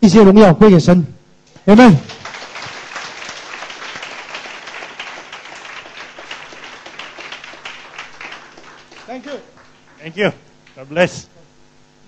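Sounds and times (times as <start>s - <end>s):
congregation applauding: 1.6s - 11.2s.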